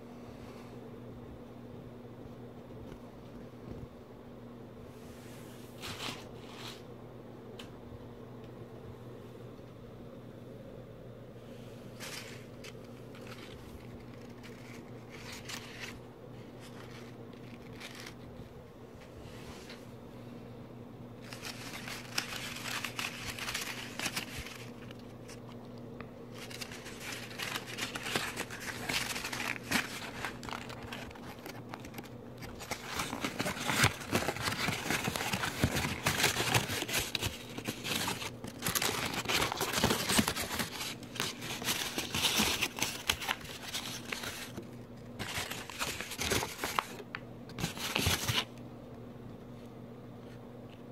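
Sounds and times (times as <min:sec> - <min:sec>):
steady low hum: 0:00.0 - 0:50.9
paper crumpling: 0:11.9 - 0:18.5, 0:21.2 - 0:48.5.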